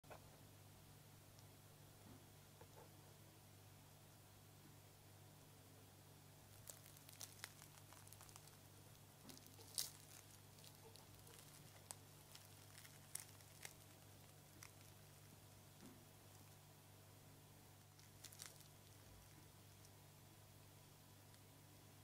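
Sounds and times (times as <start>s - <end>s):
croissant crust crackling and tearing: 6.4s - 16.7s, 17.8s - 20.0s.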